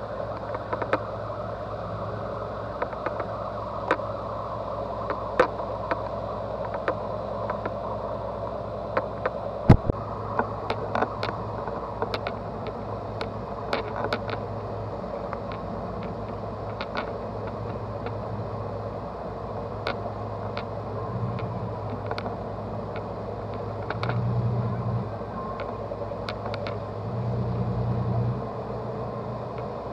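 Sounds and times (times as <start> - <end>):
boat engine humming: 0.0 - 29.9
sharp clicks and knocks: 0.3 - 1.0, 8.9 - 14.4, 15.3 - 18.2, 21.3 - 24.3, 25.6 - 26.8.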